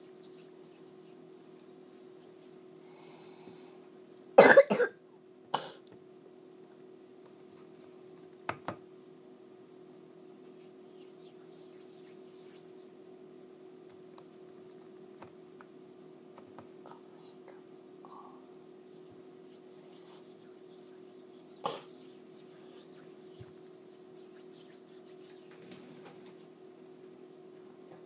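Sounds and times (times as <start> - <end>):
child coughing: 4.4 - 5.0, 5.6 - 5.8.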